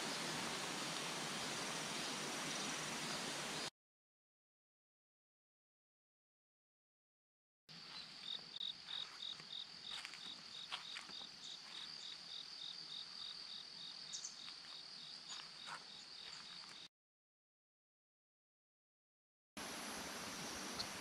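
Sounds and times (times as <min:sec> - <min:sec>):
insects buzzing: 0:00.0 - 0:03.7
insect pulsed chirp: 0:07.8 - 0:16.9, 0:19.6 - 0:21.0.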